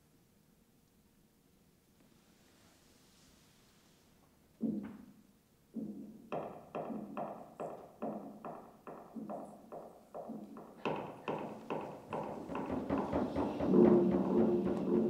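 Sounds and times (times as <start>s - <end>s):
low-pitched drum beats: 11.5s - 15.0s.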